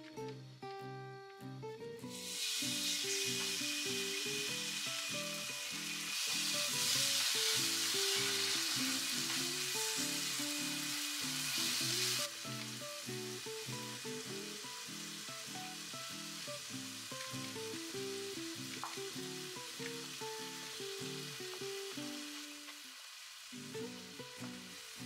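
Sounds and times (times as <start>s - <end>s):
light background music: 0.0s - 22.8s
food sizzling in hot oil: 2.0s - 25.0s.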